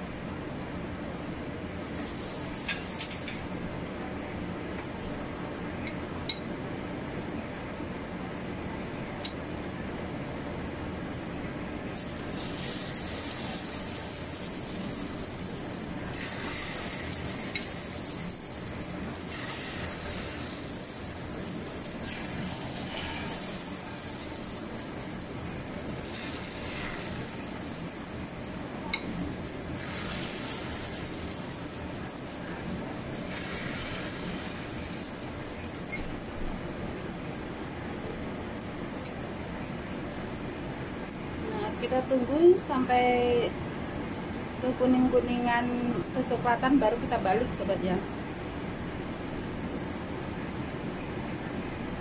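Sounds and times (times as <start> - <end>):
batter sizzling in hot oil: 1.8 - 3.6, 12.0 - 38.1.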